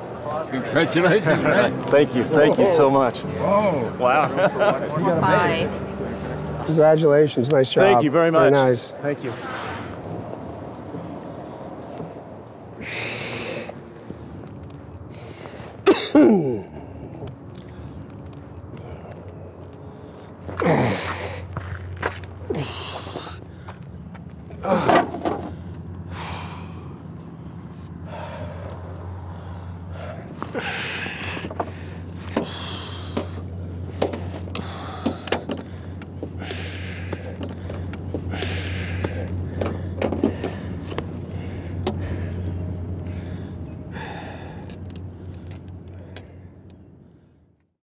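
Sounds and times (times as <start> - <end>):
steady low hum: 7.6 - 47.7
man breathing hard: 12.7 - 13.9, 18.7 - 21.8, 22.4 - 47.6.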